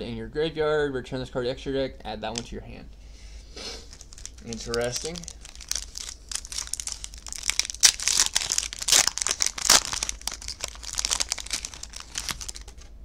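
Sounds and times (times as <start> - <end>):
foil wrapper crinkling: 3.8 - 13.0.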